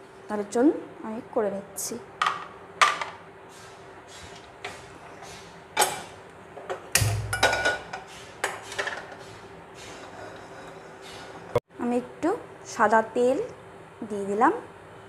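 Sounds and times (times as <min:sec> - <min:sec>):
frying pan clinking on stove grate: 0:07.0 - 0:08.0.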